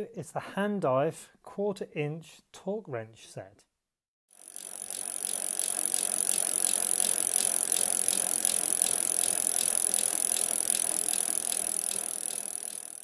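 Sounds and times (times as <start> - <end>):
bicycle freewheel ticking: 4.3 - 13.0.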